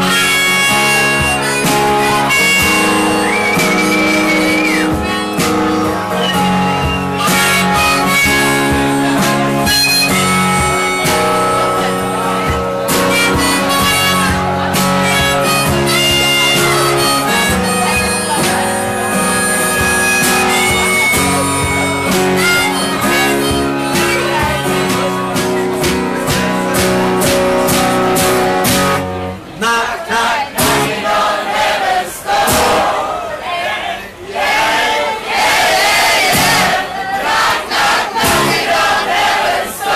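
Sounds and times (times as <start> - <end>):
harmonica: 0.0 - 29.1
acoustic guitar: 0.0 - 33.4, 35.1 - 39.9
crowd cheering: 0.9 - 28.0, 29.3 - 39.9.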